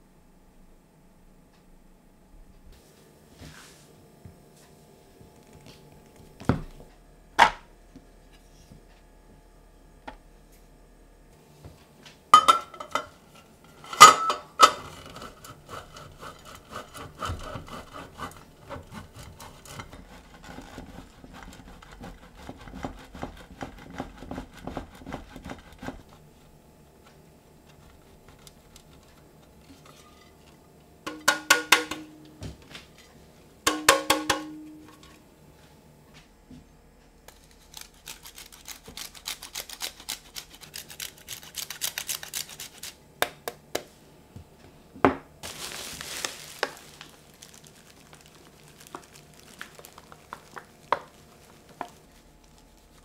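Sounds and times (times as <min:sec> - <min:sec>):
cheese grating on metal grater: 0:13.8 - 0:26.3, 0:37.3 - 0:43.0
grater knocking on bowl: 0:14.6 - 0:26.1, 0:31.1 - 0:32.1, 0:33.7 - 0:34.6
fine grater scraping: 0:14.6 - 0:26.5.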